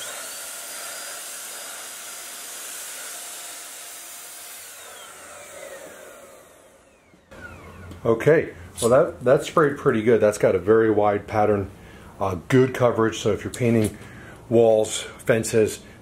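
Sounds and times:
motor whine running down: 0:00.0 - 0:08.1.

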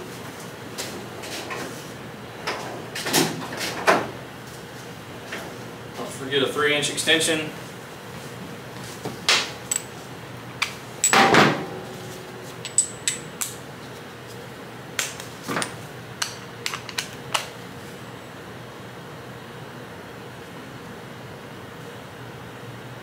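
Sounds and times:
metal tools clinking: 0:12.6 - 0:13.3
tool clatter: 0:12.6 - 0:13.4.

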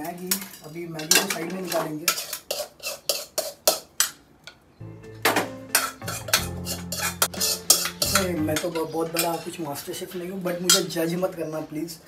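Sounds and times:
background music with bass: 0:04.8 - 0:09.6
spoon clinking against metal pan: 0:05.7 - 0:11.0.

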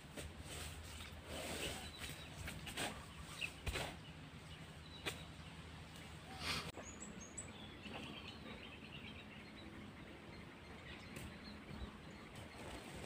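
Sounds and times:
noisy rustle: 0:12.4 - 0:13.0.

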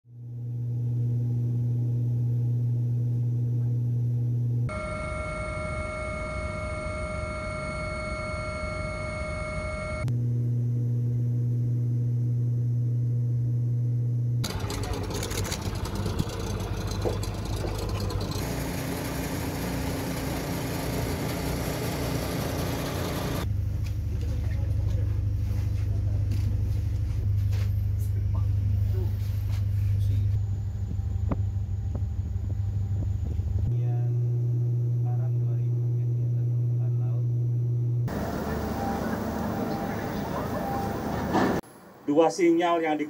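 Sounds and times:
helicopter cabin drone: 0:04.6 - 0:24.8, 0:30.4 - 0:41.6.

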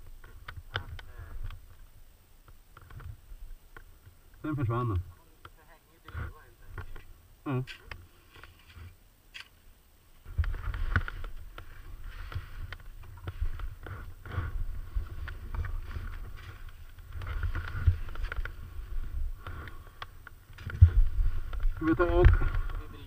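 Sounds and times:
crunching footsteps in deep snow: 0:10.2 - 0:23.0
gear rubbing on microphone: 0:10.3 - 0:19.7.

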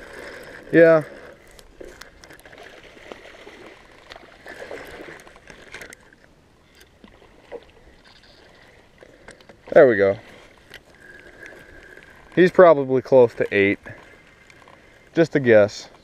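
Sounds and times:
water trickling: 0:00.0 - 0:16.0.

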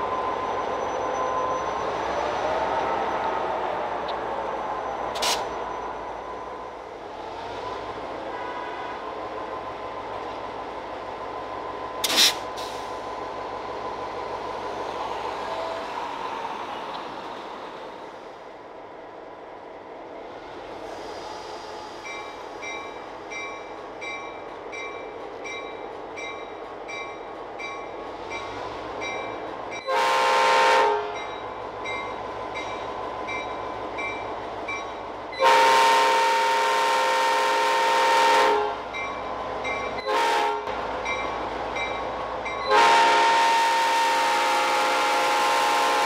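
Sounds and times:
locomotive air horn blasts: 0:29.9 - 0:31.2, 0:35.4 - 0:38.8, 0:40.0 - 0:40.7, 0:42.7 - 0:46.0.

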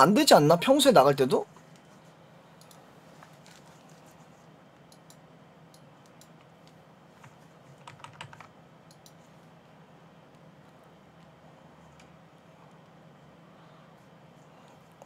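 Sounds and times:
low steady hum: 0:00.0 - 0:15.0
keyboard typing: 0:07.2 - 0:09.2.

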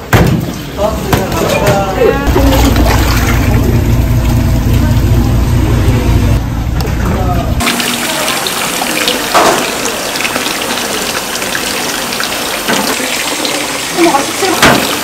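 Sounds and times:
low hum: 0:02.2 - 0:08.7.

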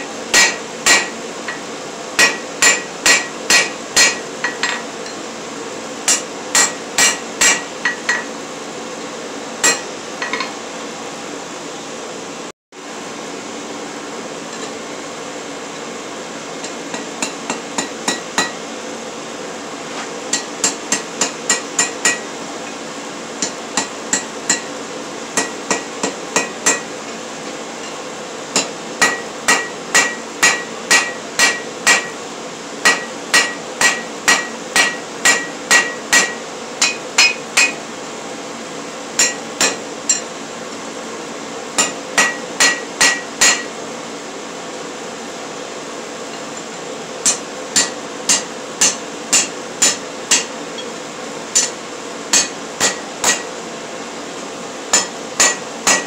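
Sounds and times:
hammer ringing on anvil: 0:00.3 - 0:05.2, 0:06.1 - 0:08.3, 0:09.6 - 0:10.5, 0:16.6 - 0:18.6, 0:23.4 - 0:24.7, 0:28.6 - 0:32.2, 0:32.8 - 0:37.8, 0:39.2 - 0:40.3, 0:41.8 - 0:43.7, 0:47.2 - 0:50.9, 0:51.6 - 0:53.5, 0:54.9 - 0:56.0.

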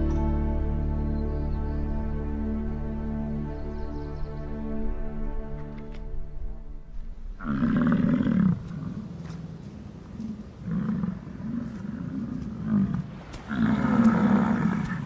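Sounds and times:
bison bellowing: 0:10.7 - 0:15.0.

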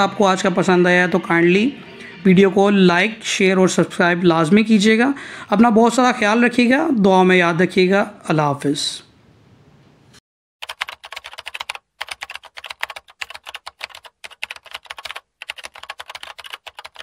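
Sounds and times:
rapid keyboard-like clicking: 0:10.6 - 0:17.0.

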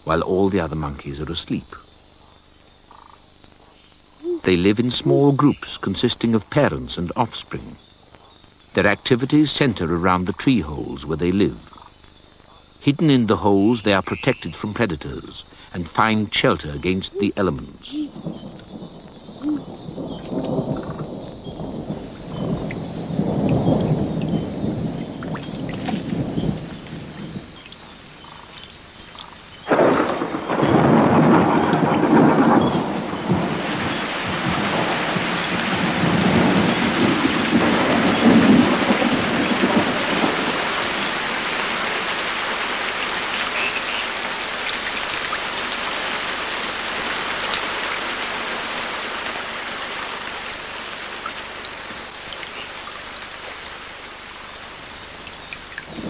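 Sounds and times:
rain falling on foliage: 0:00.0 - 0:56.0
thunder rumbling: 0:16.0 - 0:28.5, 0:29.7 - 0:42.3
loud thunder peal: 0:17.9 - 0:27.6, 0:29.7 - 0:40.8.

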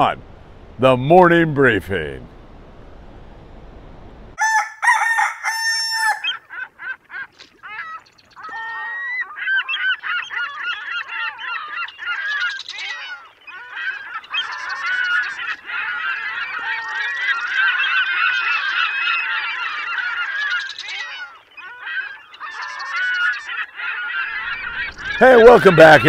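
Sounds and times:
rooster crowing: 0:04.4 - 0:06.4
geese honking: 0:04.4 - 0:26.0.

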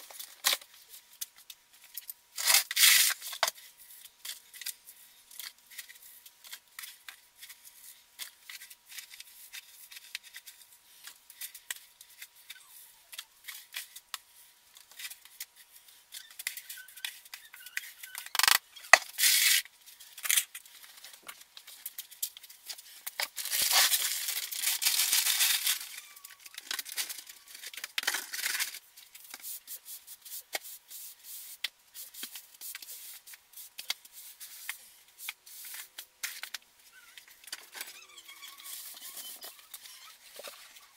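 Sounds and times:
broom sweeping floor: 0:29.2 - 0:36.1.

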